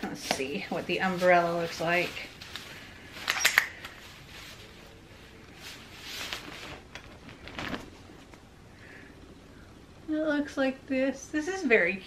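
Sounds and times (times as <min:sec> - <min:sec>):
umbrella canopy rustling: 0:00.0 - 0:08.5
umbrella springing open: 0:06.0 - 0:08.2.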